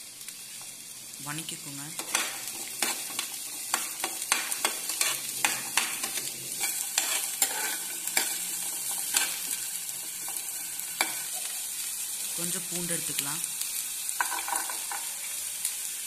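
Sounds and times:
shallots sizzling in oil: 0.0 - 16.0
metal spatula scraping pan: 2.0 - 11.5.

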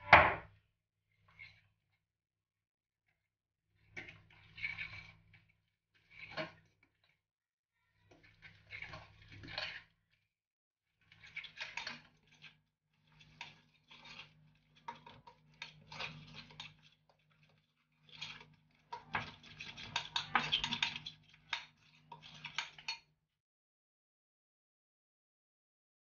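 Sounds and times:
spoon scraping glass bowl: 13.3 - 16.9, 19.1 - 23.0.

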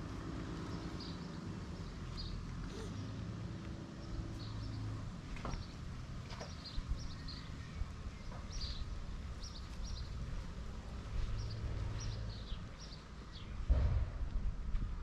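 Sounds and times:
small birds chirping: 0.6 - 13.7
steady low rumble: 8.9 - 15.0.

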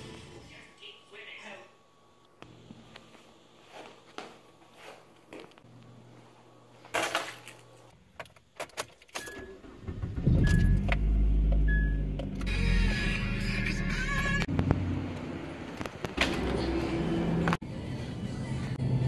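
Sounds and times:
car engine starting and running: 9.1 - 17.6.

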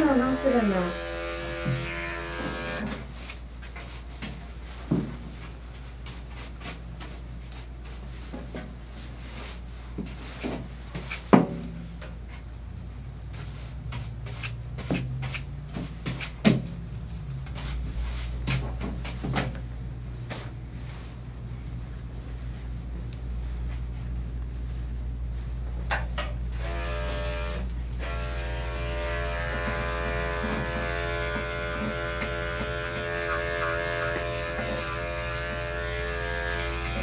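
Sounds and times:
electric clippers humming: 0.0 - 3.0, 26.5 - 37.0.

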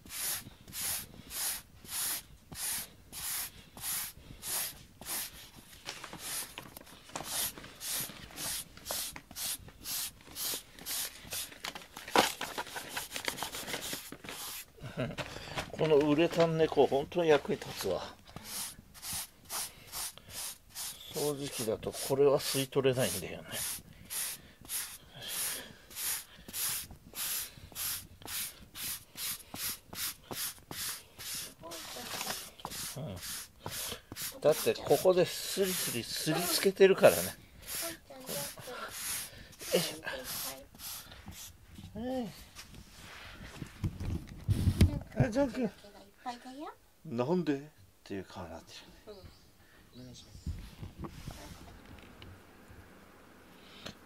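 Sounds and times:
brush scrubbing carpet: 0.0 - 5.5, 7.2 - 11.4, 18.4 - 41.5.

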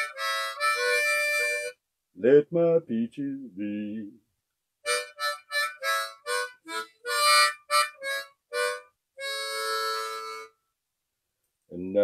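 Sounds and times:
harmonica notes: 0.0 - 1.8, 4.8 - 10.6.

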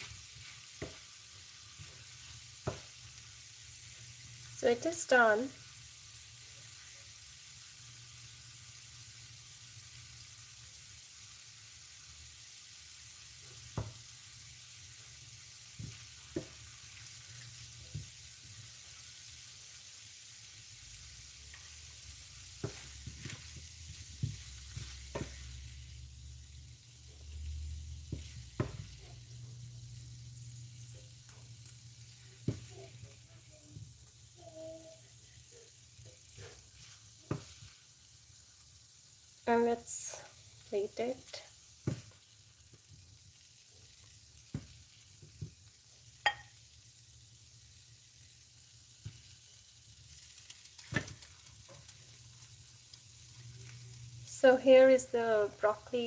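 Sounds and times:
wooden spatula scraping a pan: 0.0 - 3.1, 21.1 - 26.0, 27.9 - 29.2, 36.1 - 37.9
vegetables sizzling in a skillet: 0.0 - 56.0.

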